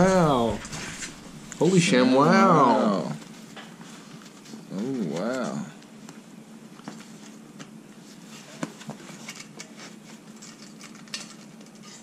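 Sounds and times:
faint steady hum: 0.0s - 12.0s
handling rustling and clicks: 8.6s - 12.0s.

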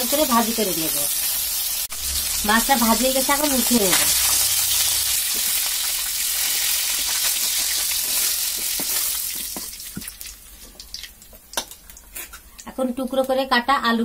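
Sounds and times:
fish sizzling in hot oil: 0.0s - 12.4s.

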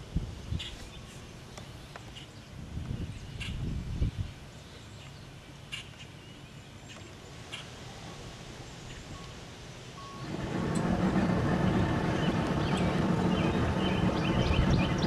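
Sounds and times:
motorboat engine: 10.1s - 15.0s.

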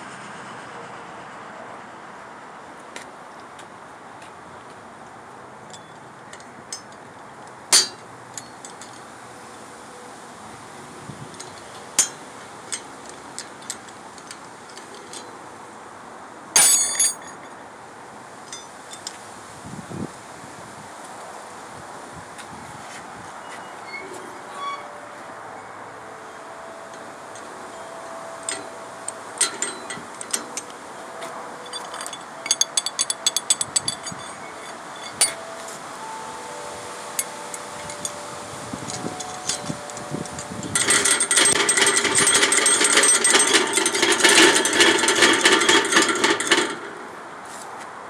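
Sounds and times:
metal gate latch clinking: 7.7s - 9.1s, 11.3s - 15.3s, 16.6s - 17.5s, 26.9s - 47.0s
rapid metal rattling: 28.4s - 30.8s, 38.8s - 47.1s.

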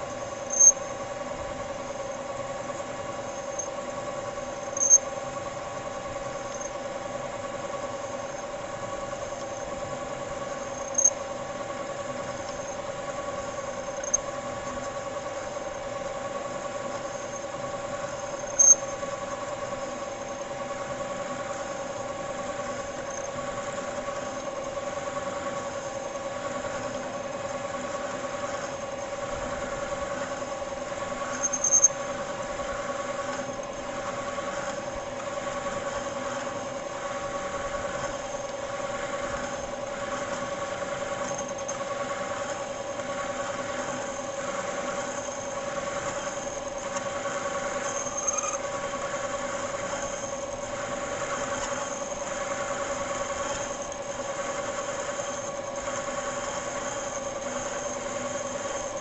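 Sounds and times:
metal lathe humming whine: 0.0s - 59.0s
short high-pitched squeals: 0.4s - 0.8s, 4.7s - 5.1s, 47.8s - 48.7s.

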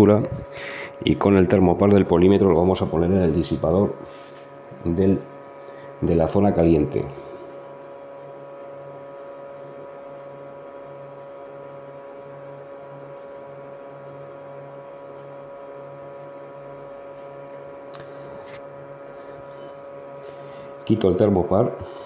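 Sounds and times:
cooler fan humming: 0.0s - 22.0s.

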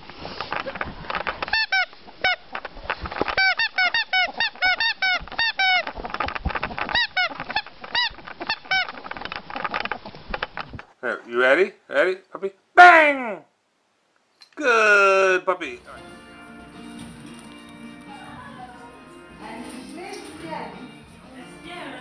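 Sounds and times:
ferret clucking chirps: 3.3s - 9.1s
scuffling and clicks of movement: 4.3s - 11.0s, 19.4s - 20.8s.

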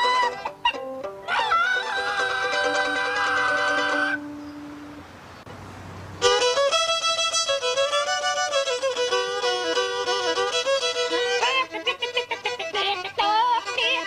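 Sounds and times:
fiddle bowed in quick notes: 1.3s - 4.3s, 6.2s - 14.0s.

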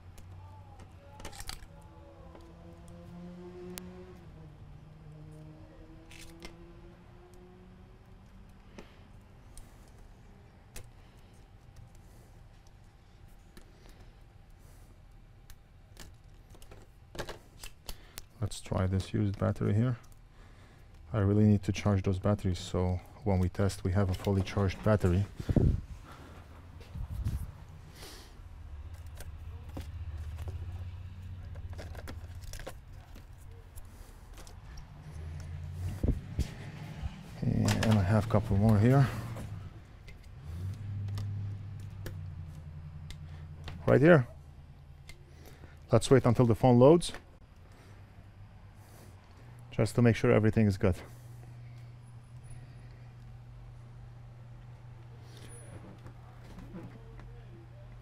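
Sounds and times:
steady low hum: 0.0s - 58.0s
small parts clicking and rattling: 0.1s - 3.0s, 6.1s - 6.6s, 8.2s - 18.4s, 28.8s - 35.6s.

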